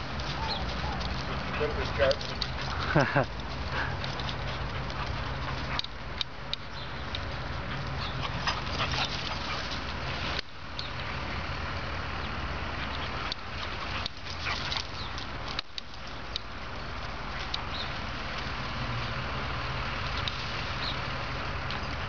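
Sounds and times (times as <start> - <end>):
dogs barking sharply: 0.0 - 6.0
outdoor hiss and low rumble: 0.0 - 22.0.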